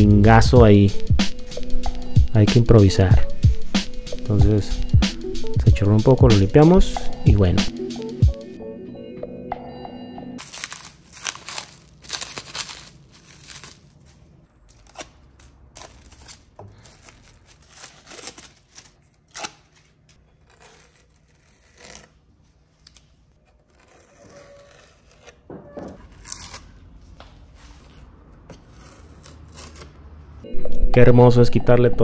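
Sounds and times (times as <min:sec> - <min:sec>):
plastic film peeling: 0:10.4 - 0:30.0.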